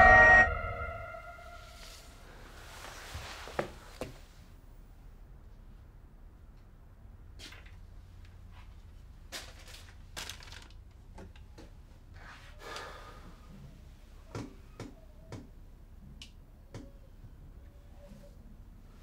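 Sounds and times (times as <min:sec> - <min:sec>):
low steady hum: 0:00.0 - 0:02.8.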